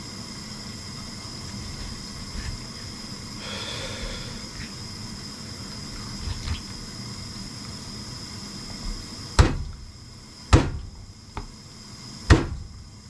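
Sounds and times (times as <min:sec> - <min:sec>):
knife chopping onto cutting board: 0:09.4 - 0:09.8, 0:10.5 - 0:11.5, 0:12.3 - 0:12.6.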